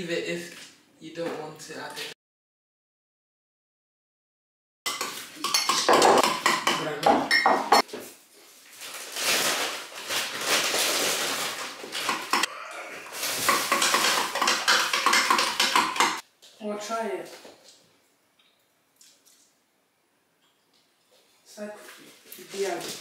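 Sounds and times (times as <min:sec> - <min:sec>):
spoon clinking against glass bowl: 0:04.9 - 0:07.8.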